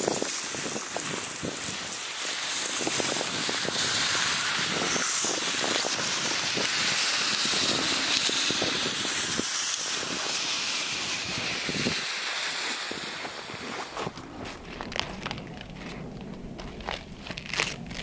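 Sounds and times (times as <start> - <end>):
wind hissing: 0.0 - 18.0
footsteps crunching in snow: 2.5 - 18.0.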